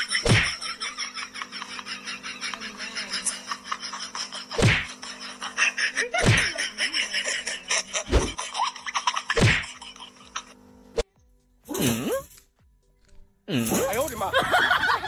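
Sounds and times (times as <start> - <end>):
person laughing: 0.0 - 10.6, 13.5 - 15.0
steady low hum: 0.0 - 15.0.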